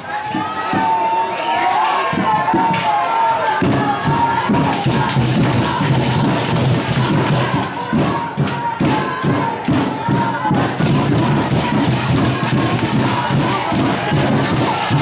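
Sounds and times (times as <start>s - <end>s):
crowd voices: 0.0s - 15.0s
loud music with thumping beat: 3.6s - 15.0s.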